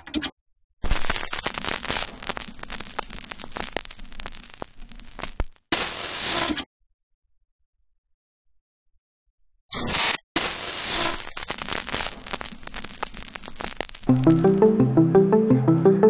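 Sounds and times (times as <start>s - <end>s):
static crackling with clicks: 0.8s - 6.7s, 10.4s - 14.1s
hiss: 5.7s - 6.6s, 10.4s - 13.8s.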